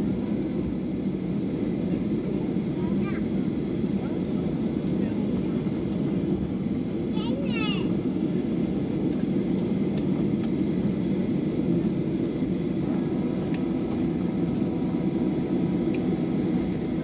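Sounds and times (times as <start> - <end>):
aircraft cabin rumble: 0.0 - 17.0.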